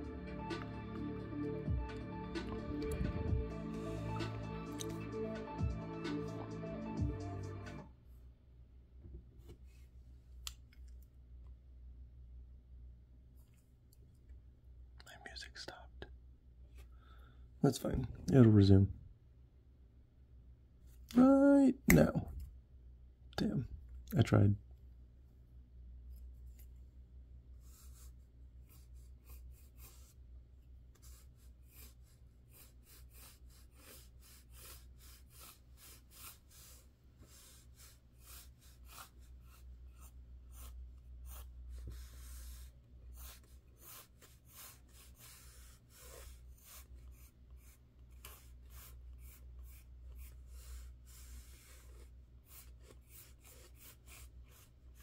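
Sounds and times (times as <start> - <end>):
steady low hum: 0.0 - 6.2
pencil scratching on paper: 27.6 - 30.2, 30.9 - 55.0.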